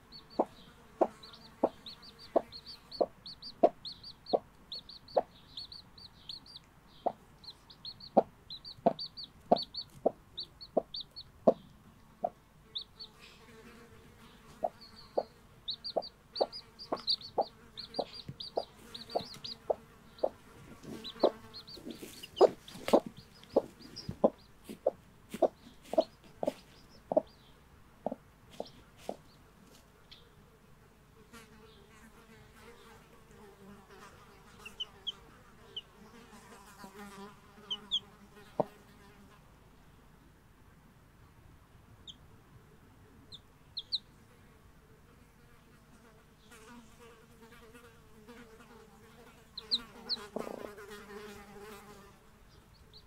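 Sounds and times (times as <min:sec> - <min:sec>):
chicks peeping: 0:00.0 - 0:13.2, 0:14.3 - 0:29.4, 0:37.7 - 0:38.7, 0:43.2 - 0:44.1, 0:49.6 - 0:50.8, 0:52.5 - 0:53.0
hen clucking: 0:00.0 - 0:13.2, 0:14.5 - 0:29.4, 0:37.7 - 0:38.7, 0:43.2 - 0:44.1, 0:49.6 - 0:51.3.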